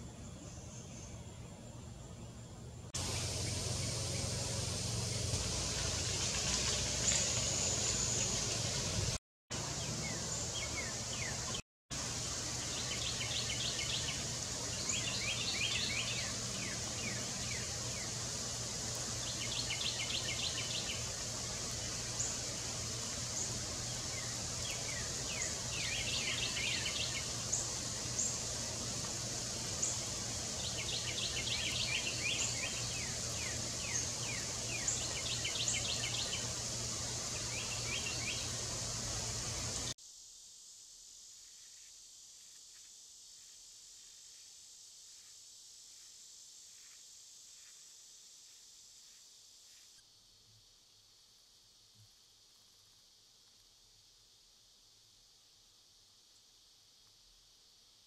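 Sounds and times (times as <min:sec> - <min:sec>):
steady low hum: 0:00.0 - 0:40.0
bird singing a trill: 0:12.7 - 0:18.1, 0:24.2 - 0:28.4, 0:30.6 - 0:36.6, 0:37.3 - 0:38.6.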